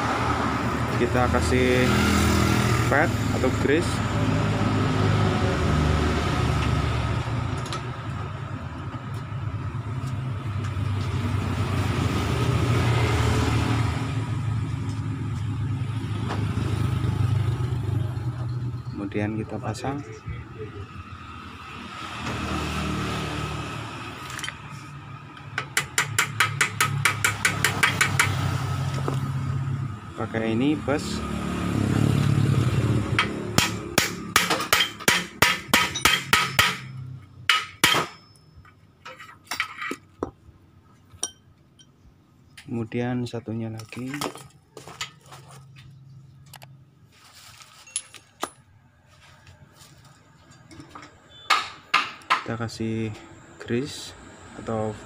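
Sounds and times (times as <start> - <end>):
metal bushings clinking: 47.7 - 48.7.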